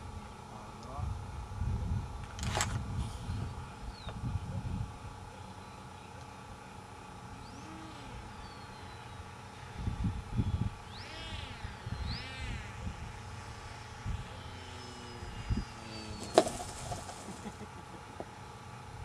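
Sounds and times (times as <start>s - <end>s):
model plane high whine: 0.0s - 19.0s
wind buffeting microphone: 1.0s - 5.2s, 9.7s - 10.8s
plane thumping down in grass: 16.2s - 17.5s.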